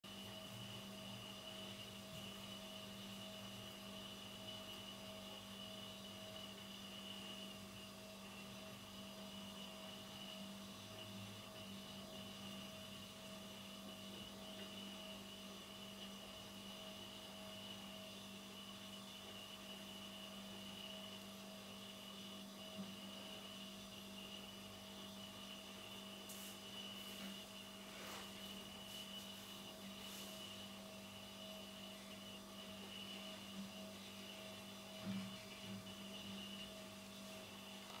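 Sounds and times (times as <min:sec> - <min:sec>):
faint electrical hum: 0:00.0 - 0:38.0
soft hiss: 0:26.1 - 0:30.8.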